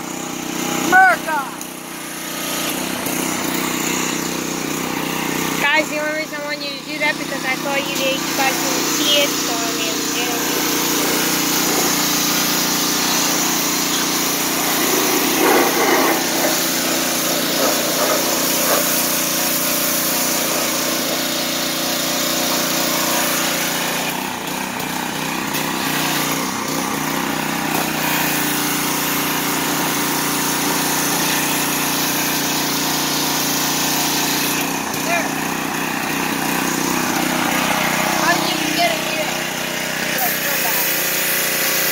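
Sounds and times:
high-pressure water jet hissing: 0.0 - 41.9
small gas engine running: 0.0 - 41.9.

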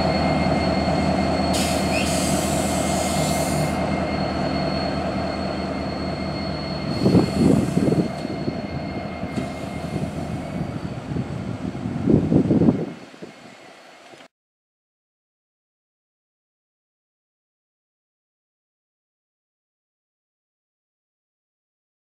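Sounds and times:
thin high whine: 0.0 - 11.3
diesel locomotive engine drone: 0.0 - 14.3.

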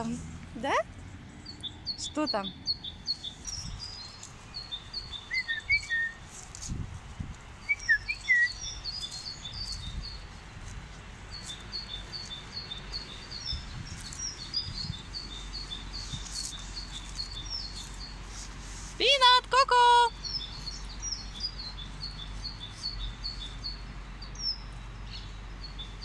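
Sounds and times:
songbirds chirping: 0.0 - 26.0
low whistled bird notes: 1.9 - 6.2, 7.6 - 10.2.

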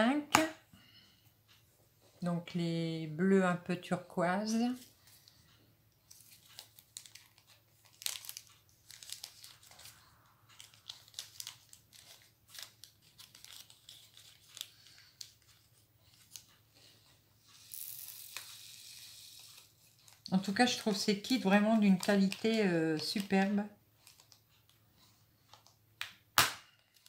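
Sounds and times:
plastic bag crinkling: 6.1 - 16.6, 17.6 - 24.4.

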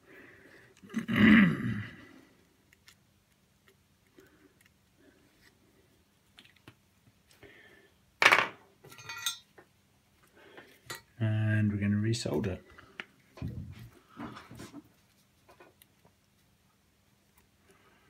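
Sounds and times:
short grunt-like vocal sound: 0.9 - 2.1.

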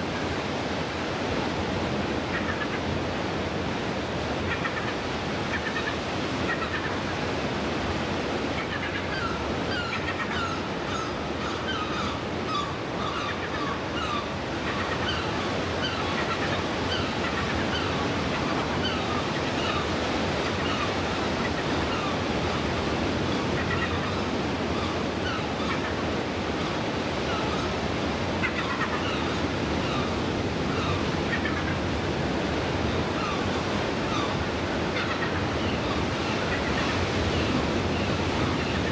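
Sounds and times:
surf on rocky shore: 0.0 - 38.9
seabirds calling: 2.2 - 3.0, 4.4 - 7.5, 8.4 - 38.9.

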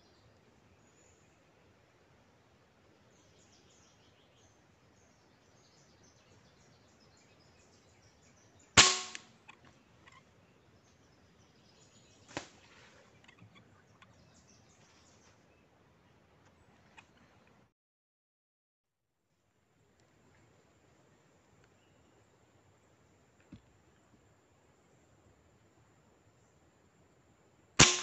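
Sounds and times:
air rifle shot: 8.8 - 9.3, 27.8 - 28.0
faint bird chirps: 9.4 - 15.7.

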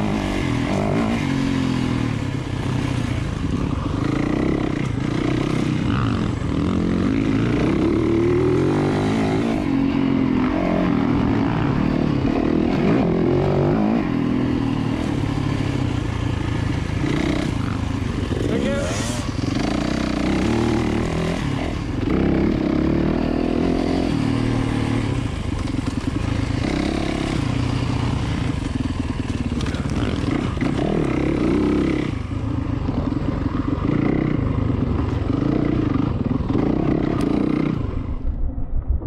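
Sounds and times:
dirt bike engine revving: 0.0 - 38.0
bike rattling: 23.9 - 37.6.

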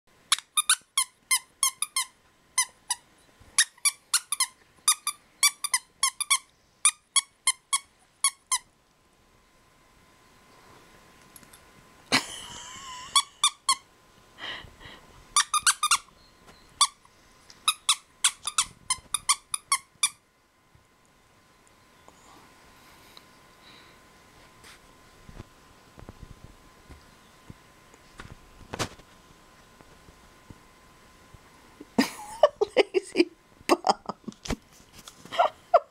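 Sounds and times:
dog toy squeaking: 0.3 - 3.0, 3.6 - 8.6, 15.4 - 16.1, 17.7 - 20.2.

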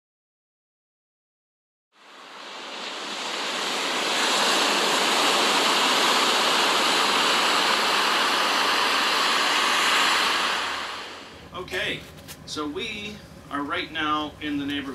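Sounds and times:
heavy seas breaking: 2.0 - 11.4
wind rushing: 2.0 - 11.5.

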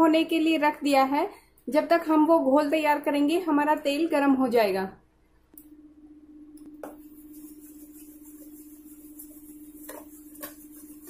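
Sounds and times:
batter being beaten in bowl: 6.8 - 11.0.

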